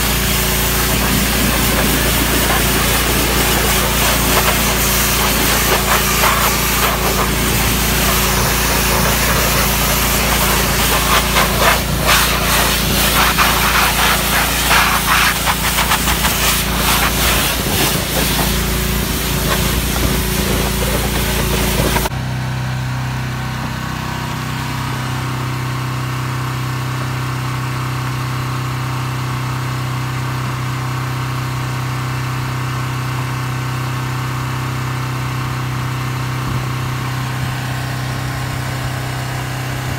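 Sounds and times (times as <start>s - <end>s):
pressure washer spray hissing: 0.0s - 22.1s
washer motor hum: 0.0s - 22.2s
engine hum: 0.0s - 39.9s.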